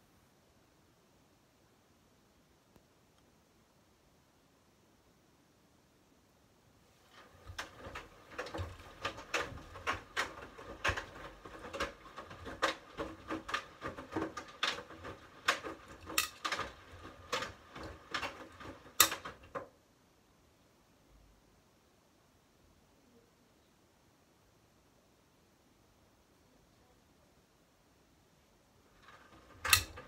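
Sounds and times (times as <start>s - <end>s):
knocks and clicks of tumbling clothes: 6.9s - 19.8s, 28.8s - 30.0s
washing machine drum rumbling: 7.0s - 19.7s, 29.0s - 30.0s.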